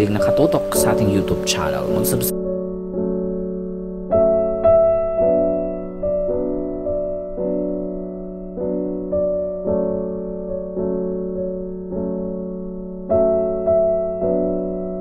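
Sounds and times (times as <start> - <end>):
slow soft piano: 0.0 - 15.0.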